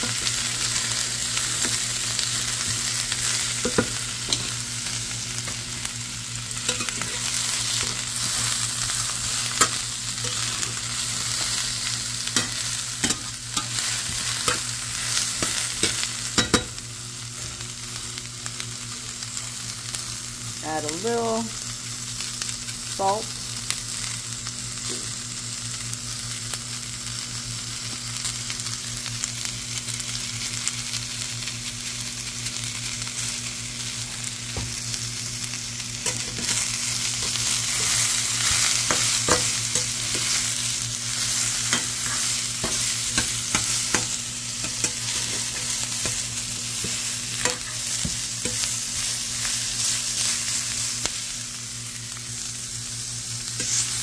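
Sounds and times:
vegetables sizzling in a frying pan: 0.0 - 54.0
spatula scraping a pan: 53.6 - 54.0.

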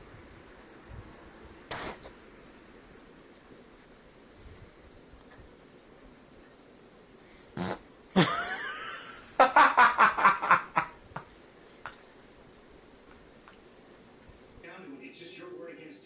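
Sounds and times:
fart sputtering: 7.6 - 7.9.

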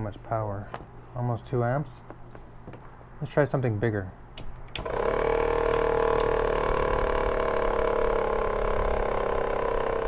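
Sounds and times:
air compressor motor running: 4.8 - 10.0.

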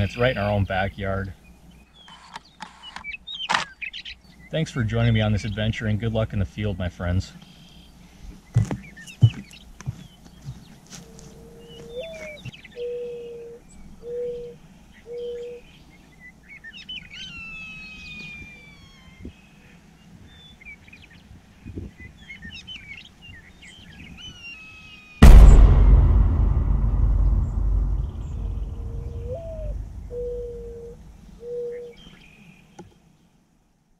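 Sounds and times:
low steady bird call: 7.3 - 21.3
loud rumble: 25.2 - 30.8.

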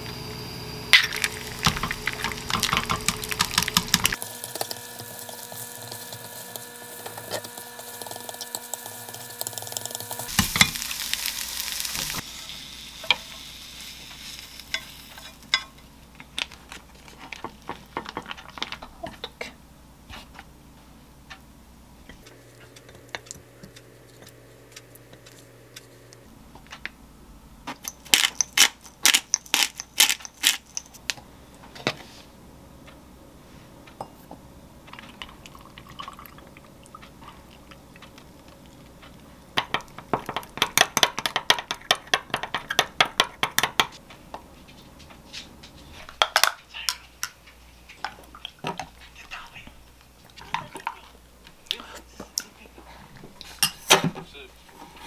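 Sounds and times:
powder pouring hiss: 0.8 - 15.5
utensils clicking on plates and glass: 1.0 - 10.8, 27.8 - 31.0.

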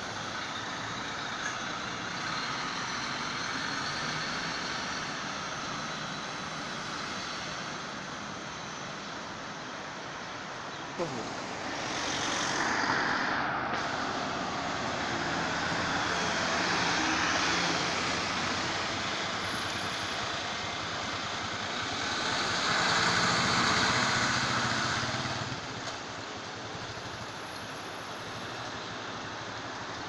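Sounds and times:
bus driving past: 0.0 - 28.4
car passing: 11.0 - 19.6.

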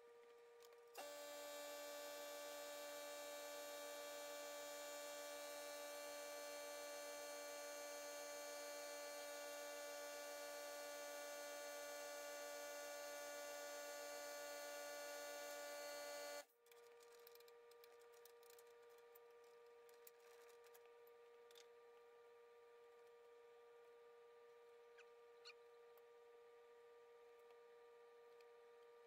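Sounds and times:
electrical machine hum: 1.0 - 16.4.

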